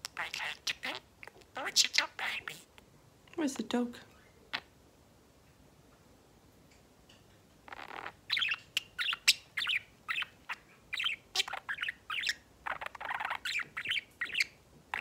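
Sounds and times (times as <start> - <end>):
budgerigar chirping and warbling: 0.0 - 2.7, 7.7 - 15.0.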